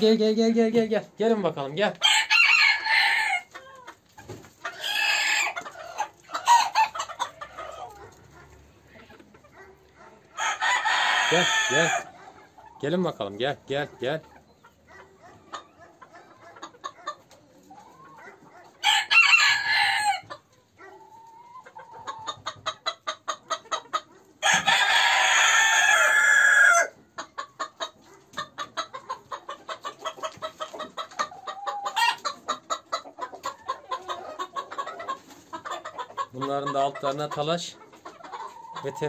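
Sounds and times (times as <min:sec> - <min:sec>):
chickens clucking: 0:00.0 - 0:39.0
rooster crowing: 0:02.0 - 0:03.5, 0:10.4 - 0:12.1, 0:18.8 - 0:20.3, 0:24.4 - 0:26.9.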